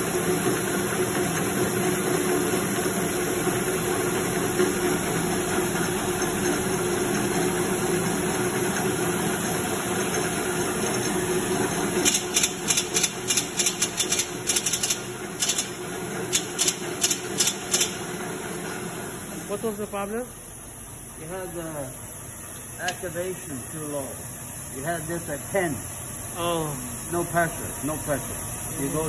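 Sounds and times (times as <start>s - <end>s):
folding machine humming: 0.0s - 29.0s
sharp machine clicks: 12.0s - 18.0s.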